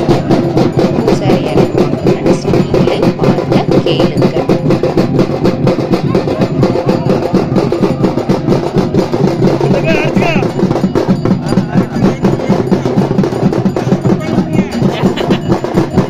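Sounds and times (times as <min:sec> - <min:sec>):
crowd voices: 0:00.0 - 0:16.0
drums beating fast rhythm: 0:00.0 - 0:16.0.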